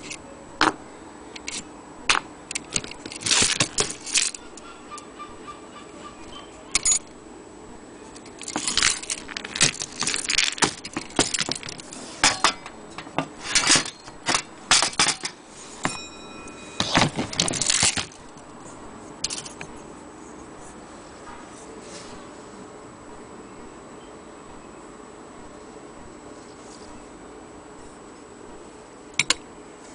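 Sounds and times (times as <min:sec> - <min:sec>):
metal chains rattling and clinking: 0:08.3 - 0:15.3
brief metallic ring: 0:15.8 - 0:16.9.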